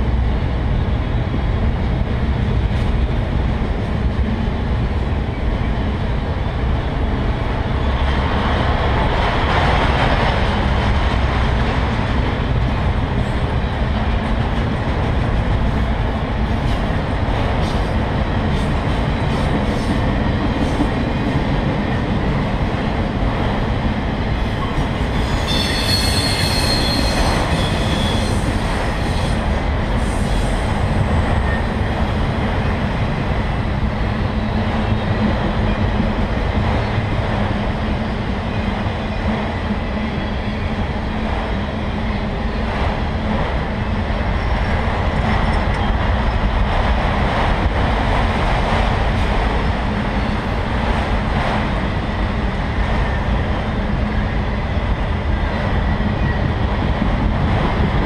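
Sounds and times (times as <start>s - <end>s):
steel wheels rolling on rail: 0.0s - 58.0s
train wheel squealing: 24.5s - 31.9s.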